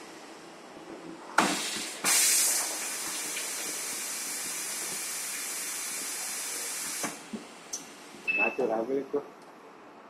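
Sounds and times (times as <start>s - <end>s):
hot air welding machine hissing: 1.4s - 7.3s.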